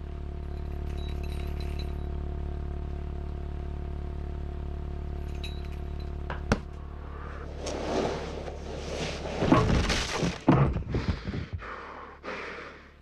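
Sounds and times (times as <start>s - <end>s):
faint metallic clinks: 0.5s - 2.2s, 5.2s - 6.3s.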